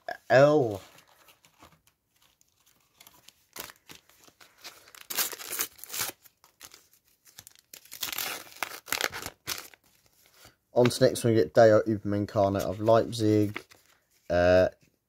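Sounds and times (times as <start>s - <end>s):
wrapper crinkling and tearing: 2.1s - 10.1s.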